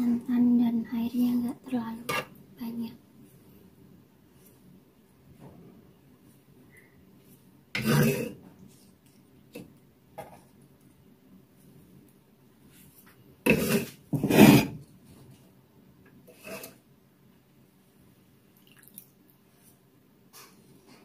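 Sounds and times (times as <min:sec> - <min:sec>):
spoon scraping a bowl: 0:07.8 - 0:08.4, 0:13.5 - 0:14.8, 0:16.3 - 0:16.8.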